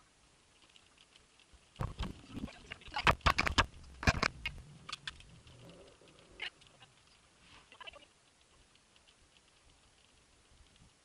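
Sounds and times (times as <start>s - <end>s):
camera handling clicks and thumps: 3.0s - 5.2s.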